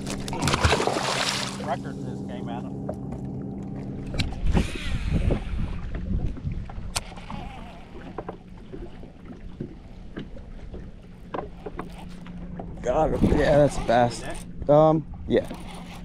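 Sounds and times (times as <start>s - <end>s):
low rumbling and rustling: 0.0s - 16.0s
small electric motor humming: 15.4s - 16.0s.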